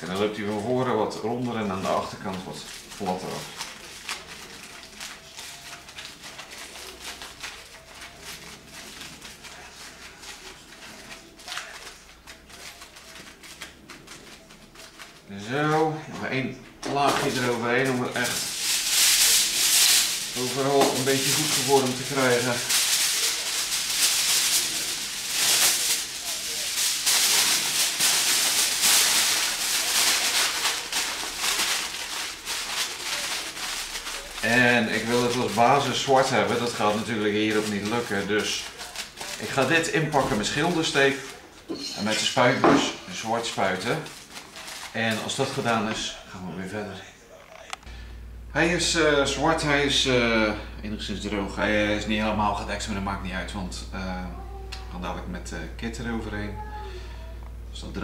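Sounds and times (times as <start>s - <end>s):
aluminium foil crinkling: 0.0s - 46.3s.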